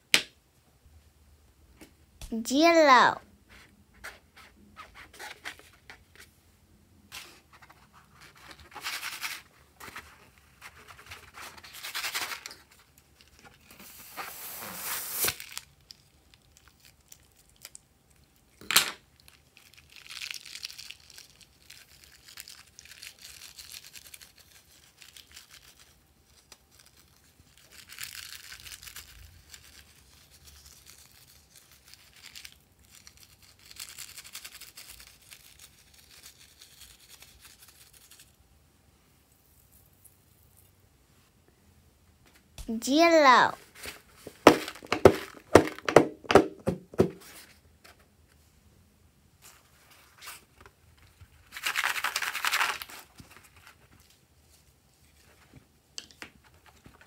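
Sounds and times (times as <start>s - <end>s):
sprinkles pouring into hand: 19.2s - 38.4s
balloon rustling and crinkling: 42.8s - 47.8s.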